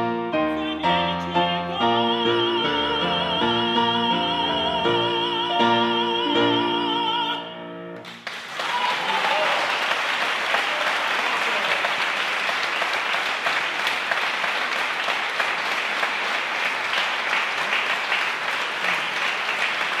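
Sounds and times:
audience applauding: 8.0s - 20.0s.

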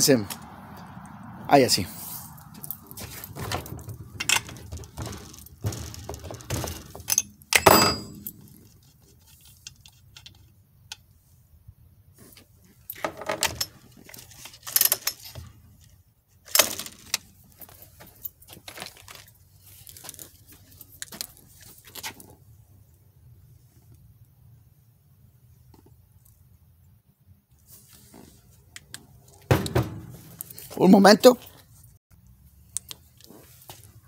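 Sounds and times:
metal hand tools clinking: 4.2s - 8.7s.

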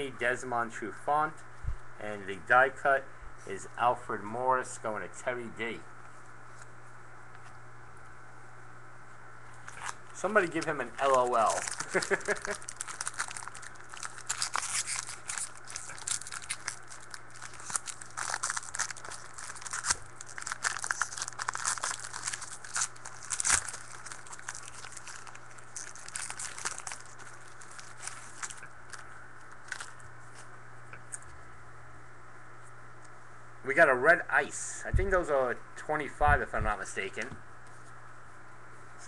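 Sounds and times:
faint low hum: 0.0s - 39.0s
foil wrapper crinkling: 9.6s - 30.5s
foil pack tearing open: 9.7s - 29.0s.

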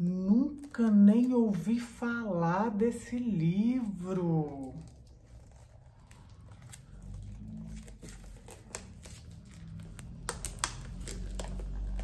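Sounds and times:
book pages turning: 3.1s - 12.0s
book closing: 4.4s - 12.0s.

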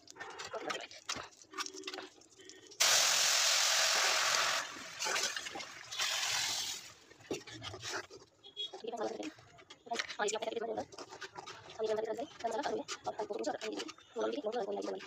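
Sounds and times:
lentils sizzling in hot oil: 2.8s - 4.9s, 5.9s - 6.9s.

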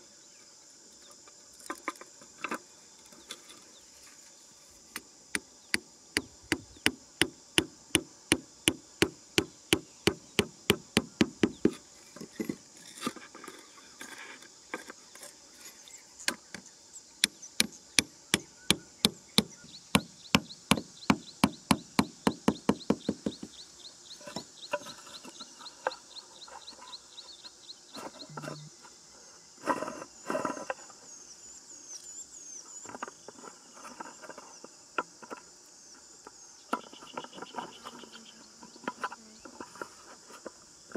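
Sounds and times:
insects buzzing: 0.0s - 40.9s
stakes hammered into ground: 4.9s - 11.8s, 17.2s - 23.5s.

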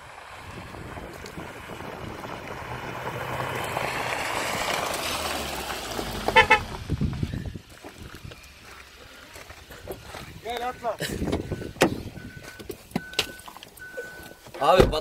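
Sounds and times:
car driving on gravel: 0.0s - 15.0s
car horn toots: 6.3s - 6.7s.

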